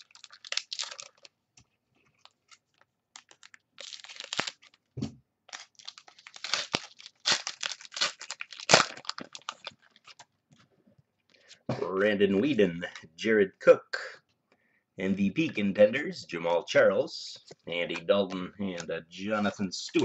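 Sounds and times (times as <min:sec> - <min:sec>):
wrapper tearing and crinkling: 0:00.0 - 0:01.3, 0:02.2 - 0:04.8, 0:05.5 - 0:10.3.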